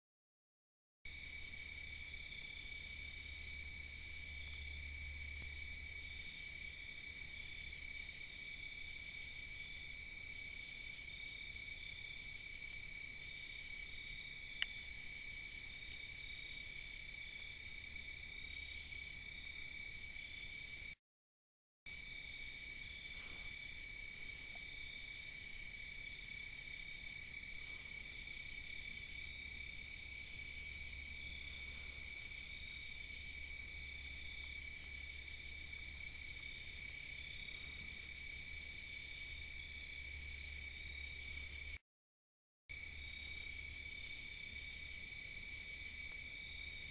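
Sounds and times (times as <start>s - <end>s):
insects trilling: 21.9s - 41.8s
pulsing insect calls: 21.9s - 41.8s.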